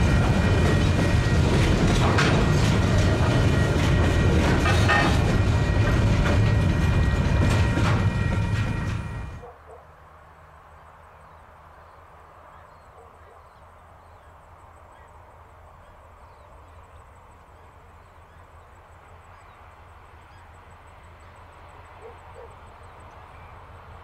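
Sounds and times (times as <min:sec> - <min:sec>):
distant diesel locomotive rumble: 0:00.0 - 0:24.0
birds chirping: 0:10.7 - 0:24.0.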